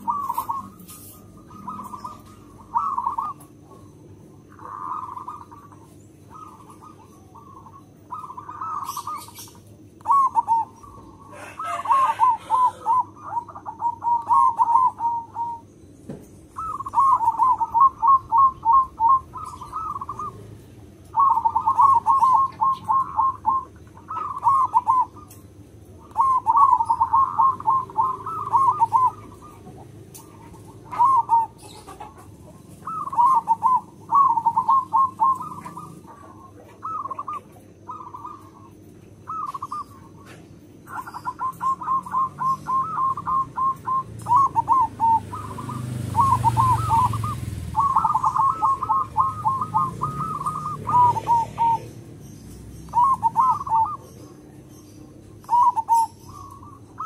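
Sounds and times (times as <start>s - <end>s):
dove cooing: 0.0s - 57.0s.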